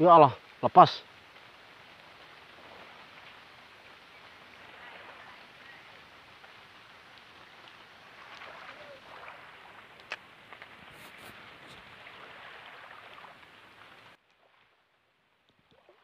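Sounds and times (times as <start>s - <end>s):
water hissing at shore: 0.0s - 14.2s.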